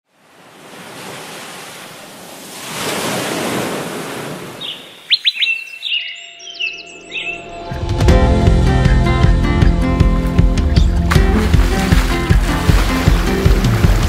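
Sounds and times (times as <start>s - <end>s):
small birds chirping: 4.6s - 7.8s.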